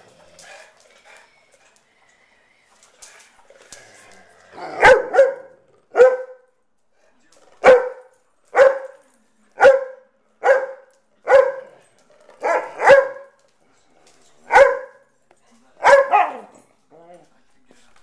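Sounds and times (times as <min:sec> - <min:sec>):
dog barking: 0:04.6 - 0:06.5, 0:07.6 - 0:09.0, 0:09.6 - 0:11.8, 0:12.4 - 0:13.4, 0:14.5 - 0:15.1, 0:15.8 - 0:16.5.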